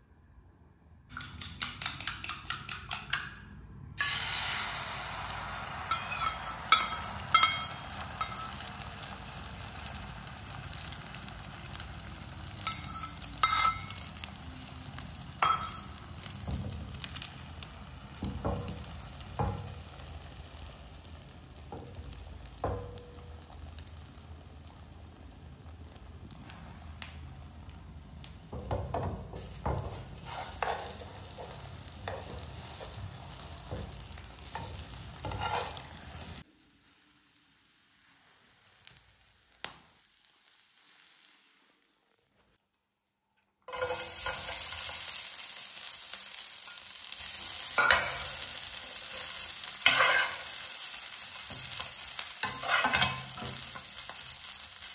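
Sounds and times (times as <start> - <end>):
egg sizzling in a frying pan: 4.0 - 42.6, 43.7 - 54.9
spatula scraping a pan: 5.9 - 9.0, 12.5 - 14.1, 29.4 - 36.4, 43.7 - 45.2, 46.7 - 54.5.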